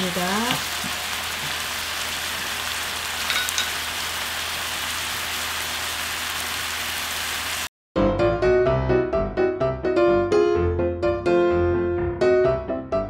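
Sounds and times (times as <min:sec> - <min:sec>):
food sizzling in sauce: 0:00.0 - 0:07.7
light clink: 0:03.3 - 0:03.8.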